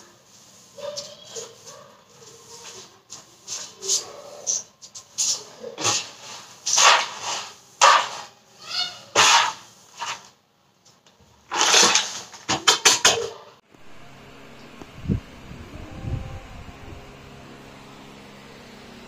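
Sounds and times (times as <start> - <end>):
dust brushed into plastic dustpan: 0.0 - 4.3, 5.0 - 8.4, 9.2 - 10.4
broom sweeping a hard floor: 0.0 - 12.4.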